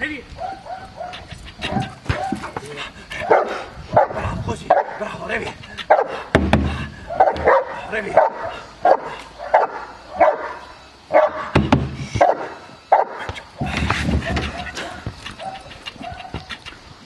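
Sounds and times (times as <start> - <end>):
dog barking: 0.4 - 2.5, 3.2 - 5.0, 5.9 - 6.2, 7.1 - 11.5, 12.2 - 13.3, 14.5 - 16.4.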